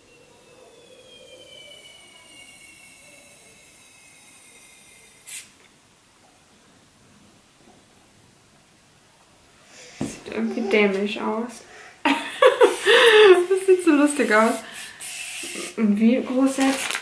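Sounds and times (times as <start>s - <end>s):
thin whistle of air into ball: 0.0s - 5.6s.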